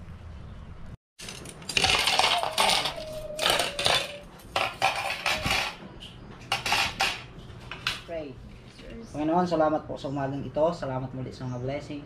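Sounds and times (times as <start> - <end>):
cutlery clattering onto plates: 1.2 - 5.8, 6.5 - 8.0.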